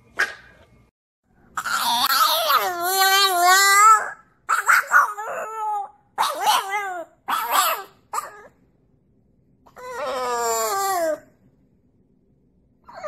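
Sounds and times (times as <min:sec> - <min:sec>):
dog howling: 0:01.6 - 0:08.5, 0:09.7 - 0:11.3.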